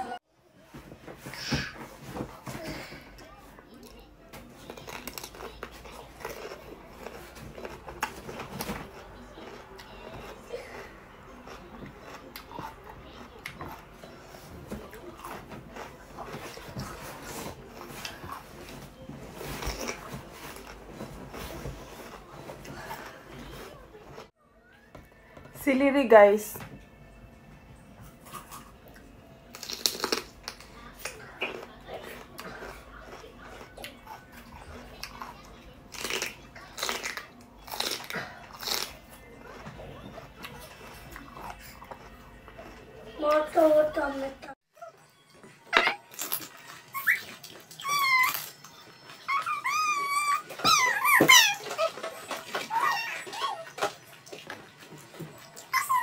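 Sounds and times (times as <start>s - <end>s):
crunchy chewing of cucumber: 3.8s - 24.3s, 28.0s - 43.0s, 45.9s - 56.0s
crunch of biting cucumber: 29.5s - 34.0s, 35.9s - 39.0s.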